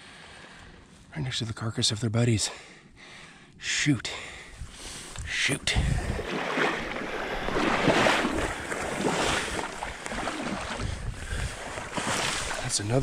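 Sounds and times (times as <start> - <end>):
water sloshing around wading legs: 4.9 - 13.0.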